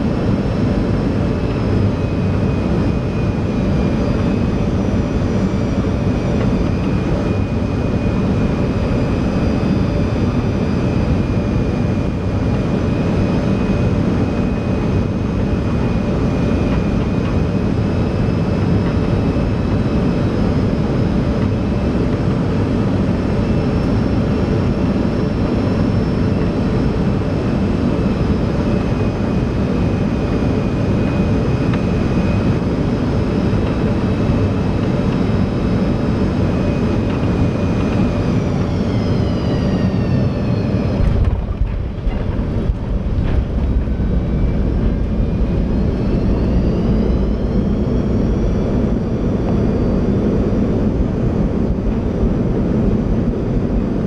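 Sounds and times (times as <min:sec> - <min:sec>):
jet engine whine: 0:00.0 - 0:54.0.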